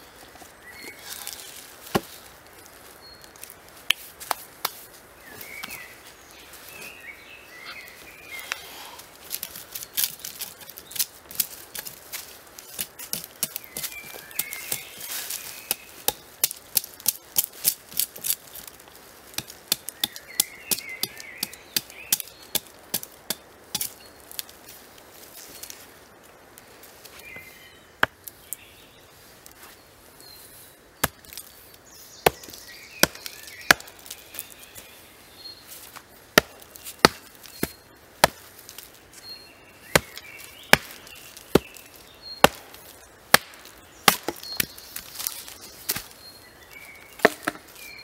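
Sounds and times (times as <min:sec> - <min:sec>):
hatchet chopping log: 0:01.9 - 0:02.2, 0:12.7 - 0:15.0, 0:19.3 - 0:24.0, 0:32.2 - 0:34.0, 0:36.4 - 0:38.4, 0:39.9 - 0:41.8, 0:42.4 - 0:44.7, 0:47.2 - 0:47.6.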